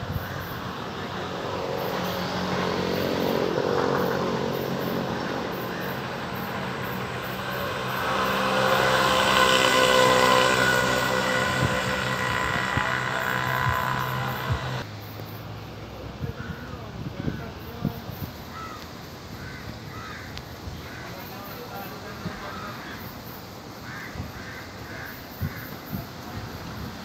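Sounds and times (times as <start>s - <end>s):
engine hum: 0.0s - 16.1s.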